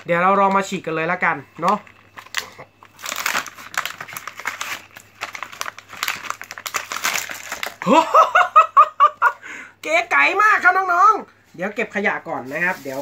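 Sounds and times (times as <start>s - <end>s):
plastic packaging crackling and ripping: 0.0s - 8.0s, 12.3s - 13.0s
person laughing: 7.8s - 9.7s.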